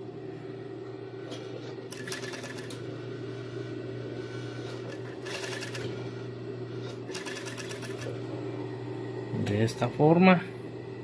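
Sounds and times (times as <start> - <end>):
sewing machine motor hum: 1.3 - 8.6
sewing machine needle strokes: 5.0 - 5.9, 7.1 - 8.1.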